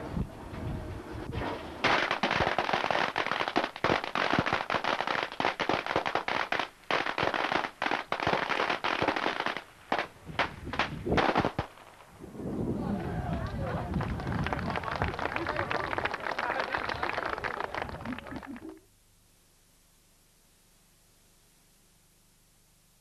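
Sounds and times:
firecrackers crackling: 1.7s - 12.2s, 13.3s - 18.8s.

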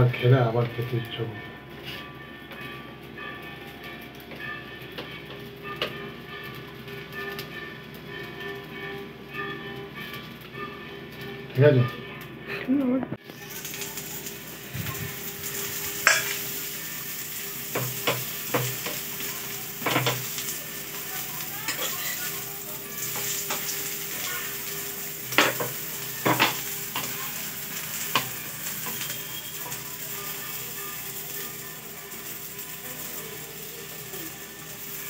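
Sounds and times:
flatbread sizzling in oil: 13.2s - 35.0s.

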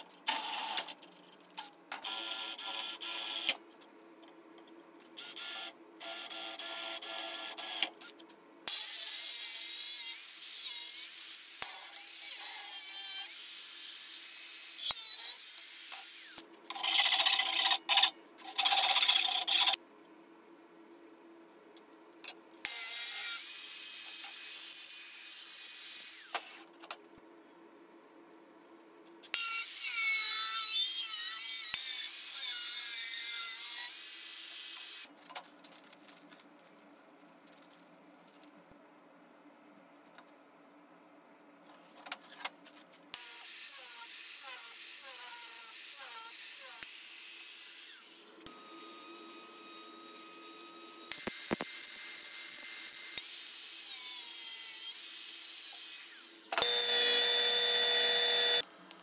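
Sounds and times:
angle grinder cutting steel: 43.2s - 58.6s
band saw whining: 56.6s - 58.6s.

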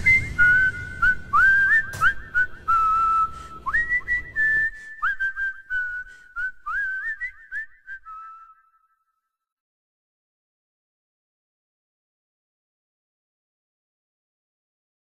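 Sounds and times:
person whistling a melody: 0.0s - 9.1s.

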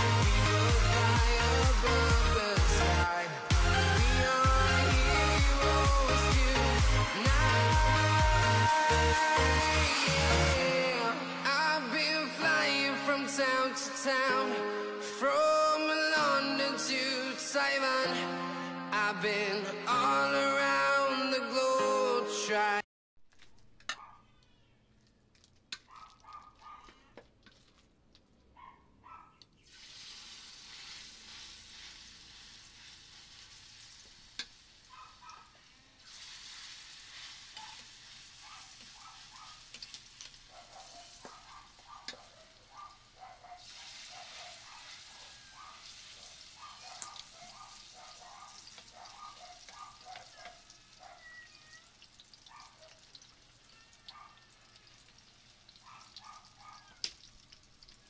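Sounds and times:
spatula stirring: 25.0s - 28.3s, 29.7s - 42.7s
batter sizzling in hot oil: 29.6s - 58.0s.

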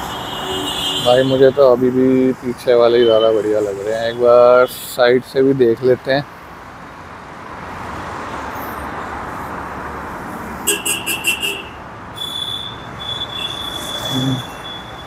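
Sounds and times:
background traffic noise: 0.0s - 15.0s
short horn toots: 10.7s - 14.9s.

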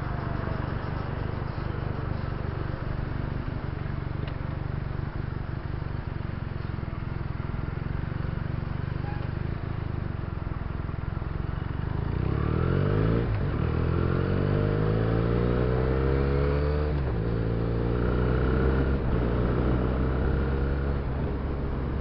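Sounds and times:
motorcycle engine accelerating: 11.4s - 22.0s.

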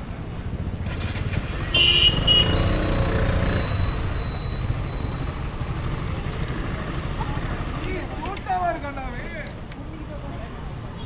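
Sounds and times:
motorcycle engine running: 0.0s - 7.8s
vehicle horn honking: 1.7s - 2.8s.

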